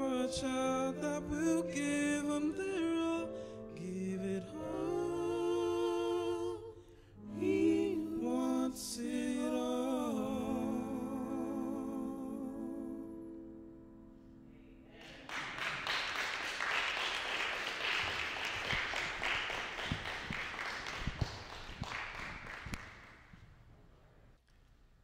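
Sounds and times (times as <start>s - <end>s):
man singing with vibrato: 0.0s - 13.2s
piano: 0.0s - 24.2s
audience applause: 15.0s - 23.3s.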